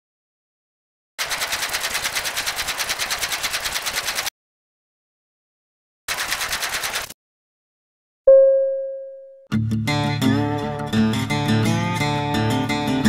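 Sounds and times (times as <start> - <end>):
rapid mechanical clicking: 1.2 - 4.3, 6.1 - 7.2.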